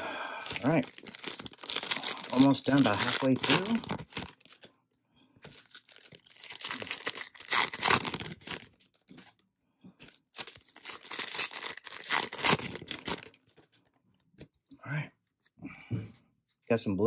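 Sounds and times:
card pack wrappers tearing and crinkling: 0:00.4 - 0:04.7, 0:05.4 - 0:09.3, 0:10.0 - 0:13.8.

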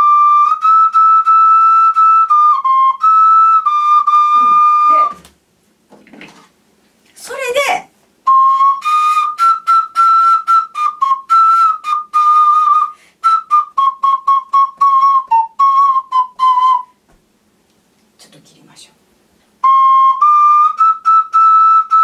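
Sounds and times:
ocarina melody: 0:00.0 - 0:05.3, 0:08.2 - 0:17.0, 0:19.6 - 0:22.0.

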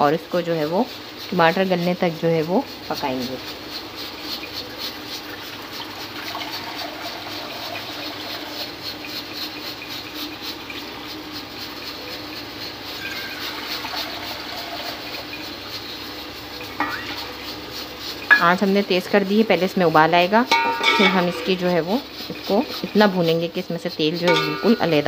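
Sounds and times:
water pouring into pot: 0:05.1 - 0:08.8, 0:12.9 - 0:18.5, 0:24.3 - 0:25.0.

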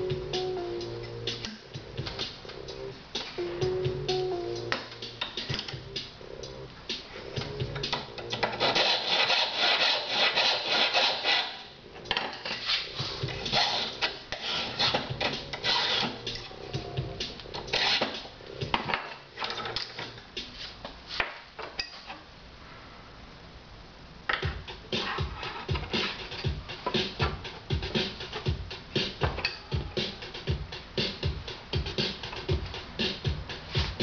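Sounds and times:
file rasping on metal: 0:08.3 - 0:11.7, 0:12.5 - 0:16.2, 0:17.7 - 0:18.2.

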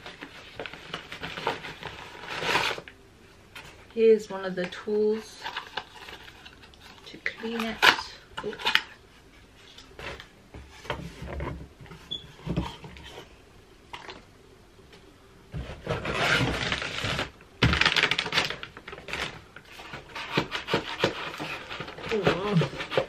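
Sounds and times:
packaging rustling and scraping: 0:00.0 - 0:14.2, 0:15.5 - 0:23.0
cardboard packaging knocks and clicks: 0:15.6 - 0:23.0.

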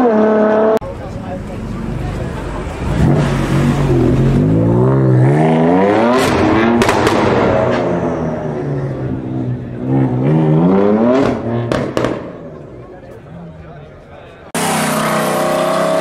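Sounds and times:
car accelerating hard: 0:02.6 - 0:12.3, 0:14.6 - 0:16.0.

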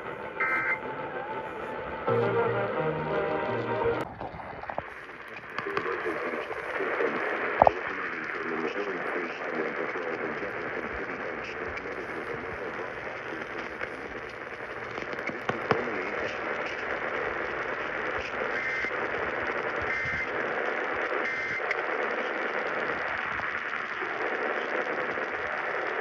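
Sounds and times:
radio static hiss and crackle: 0:00.0 - 0:26.0
clicks: 0:05.2 - 0:06.7, 0:13.3 - 0:15.9.

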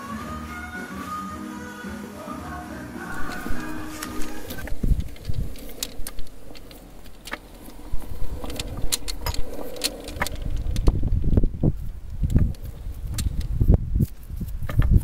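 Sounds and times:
low thumps and rumble: 0:03.1 - 0:15.0.

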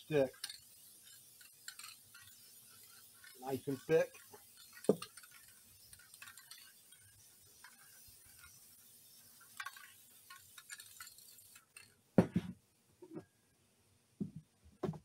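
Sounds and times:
aerosol can spraying: 0:00.0 - 0:12.4
loud thump: 0:12.2 - 0:12.6.

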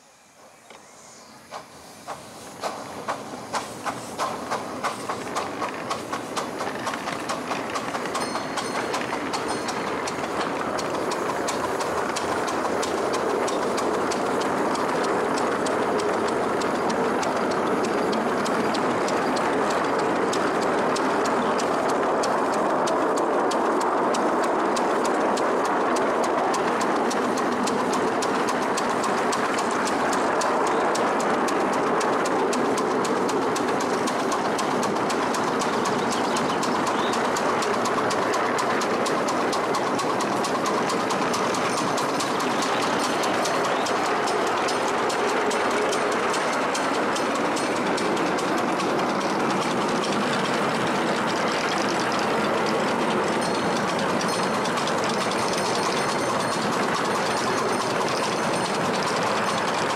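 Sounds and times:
steam locomotive exhaust chuffs: 0:00.0 - 0:59.9
wheels clicking on rails: 0:00.0 - 0:59.9.

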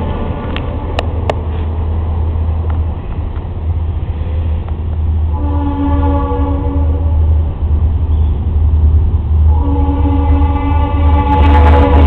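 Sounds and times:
locomotive air horn blast: 0:05.3 - 0:07.2, 0:09.5 - 0:12.0.

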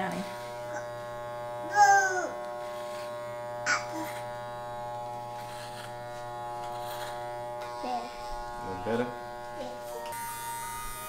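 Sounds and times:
hair clippers buzzing: 0:00.0 - 0:11.0.

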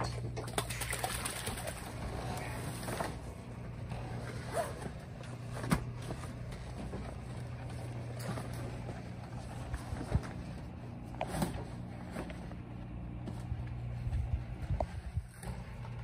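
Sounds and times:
steady low hum: 0:00.0 - 0:16.0
canvas cover rustling: 0:01.9 - 0:16.0.

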